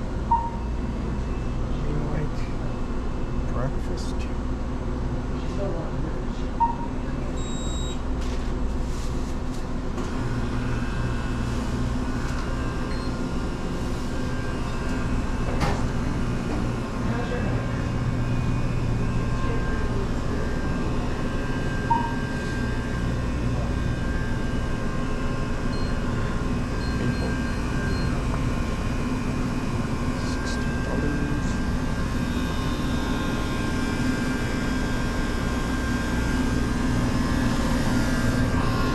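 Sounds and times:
low mechanical hum: 0.0 - 38.9
short high beeps: 0.3 - 0.7, 6.6 - 8.0, 21.9 - 22.3.

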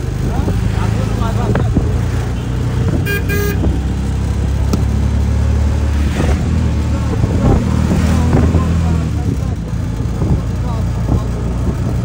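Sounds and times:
vehicle engine and road hum: 0.0 - 12.0
car horn toots: 2.4 - 3.8.

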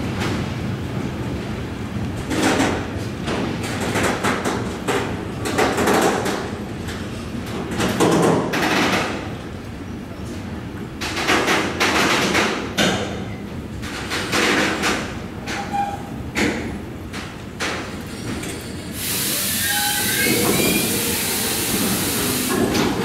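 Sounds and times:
freight train rumbling past: 0.0 - 7.8, 12.6 - 23.0
train wheels clattering and banging: 0.0 - 23.0.

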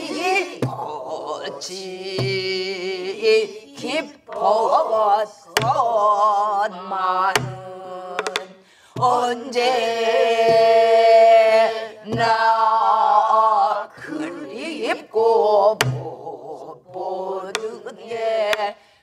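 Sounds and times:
woman singing: 0.0 - 18.9
group singing: 0.0 - 19.0
stick striking barrel drum: 1.6 - 2.8, 5.6 - 5.9, 7.3 - 9.5, 10.3 - 13.0, 15.8 - 16.2, 16.9 - 18.7.

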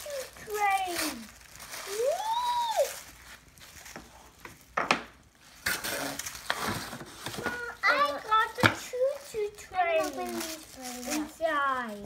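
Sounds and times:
child's high voice: 0.0 - 3.0, 7.4 - 12.0
tissue paper rustling: 0.0 - 12.0.

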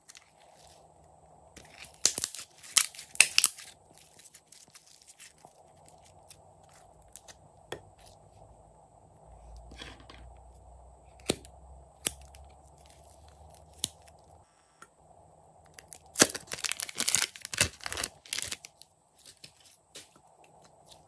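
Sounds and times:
slime crackling and popping: 1.6 - 7.4, 15.7 - 18.8.

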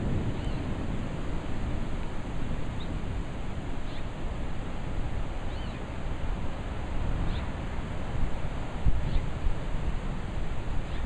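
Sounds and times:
wind buffeting microphone: 0.0 - 11.0
wind through leafy trees: 0.0 - 11.0
bird chirping: 5.5 - 5.9, 7.2 - 7.5.

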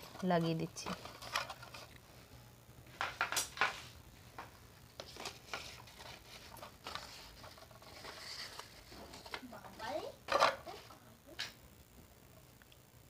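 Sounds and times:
paper strips rustling: 0.0 - 2.0, 3.0 - 10.9.

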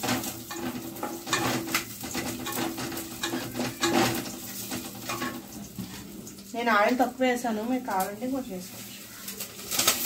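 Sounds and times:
spatula scraping pan: 0.0 - 6.4
garlic frying in oil: 0.0 - 10.0.

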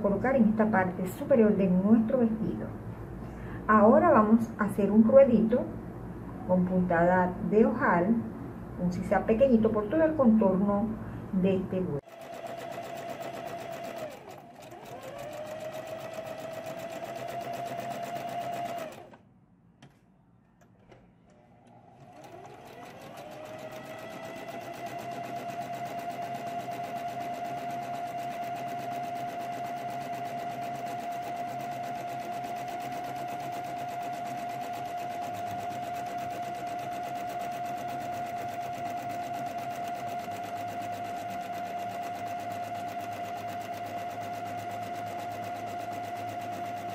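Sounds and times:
sewing machine stitching: 12.0 - 19.2, 20.7 - 46.9.

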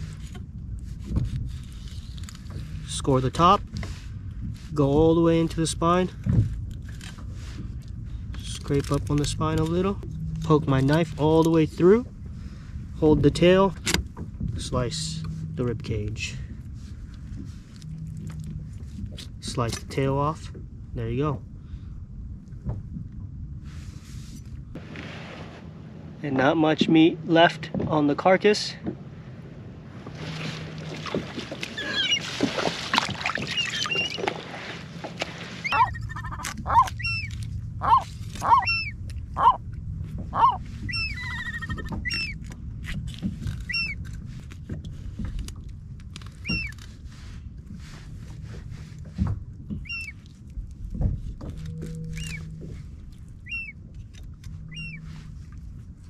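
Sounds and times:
gulls calling: 31.0 - 32.6, 33.2 - 34.5, 35.6 - 39.6, 40.2 - 42.4, 43.7 - 44.0, 46.4 - 46.8, 49.8 - 50.2, 51.8 - 52.7, 53.3 - 53.9, 54.6 - 55.2.

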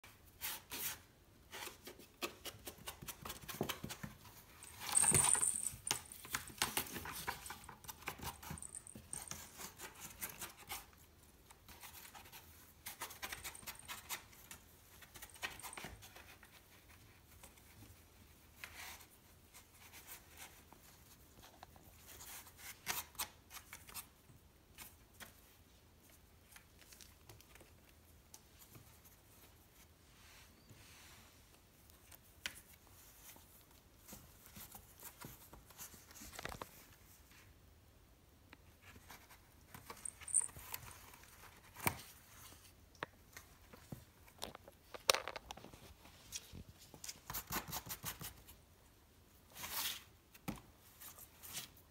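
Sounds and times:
high jingle: 4.7 - 6.0.

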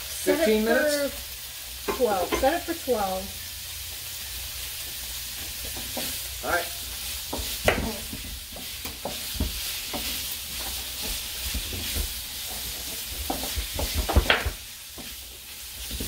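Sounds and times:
meat sizzling in a frying pan: 0.0 - 16.0
knife knocking on cutting board: 7.3 - 8.3.

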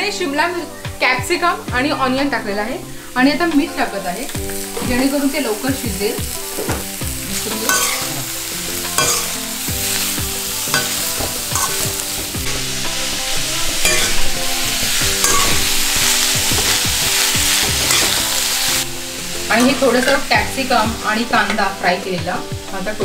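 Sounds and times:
vegetables sizzling in oil: 0.0 - 23.0
spatula scraping pan: 6.3 - 20.4.

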